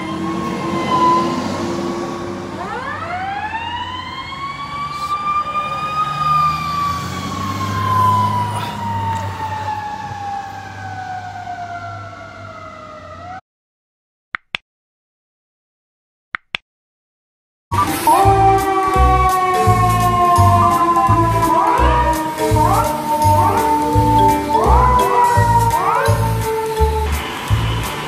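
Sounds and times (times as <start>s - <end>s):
fire truck siren wailing: 0.0s - 13.4s, 17.7s - 28.0s
truck engine running: 17.8s - 28.0s.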